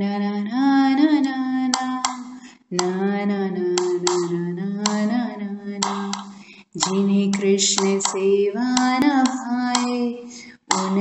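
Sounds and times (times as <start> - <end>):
woman singing long notes: 1.0 - 11.0
hand claps: 1.8 - 2.9, 3.8 - 5.1, 5.8 - 7.1, 7.8 - 8.2, 8.8 - 10.0, 10.7 - 11.0.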